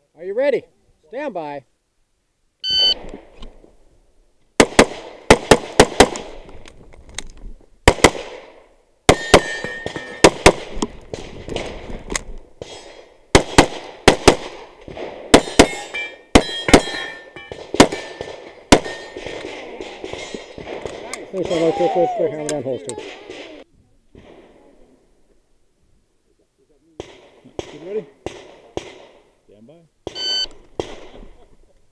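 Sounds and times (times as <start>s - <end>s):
pistol shots: 4.6s - 6.4s, 7.8s - 8.5s, 9.1s - 11.8s, 12.6s - 21.6s, 27.0s - 29.2s, 30.0s - 31.2s.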